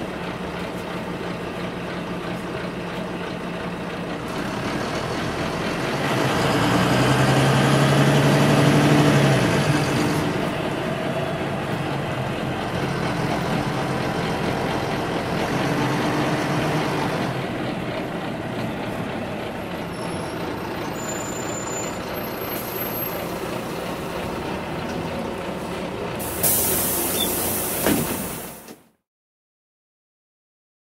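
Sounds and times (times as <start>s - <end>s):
bus engine and road noise: 0.0s - 29.0s
air brake hiss: 26.2s - 28.8s.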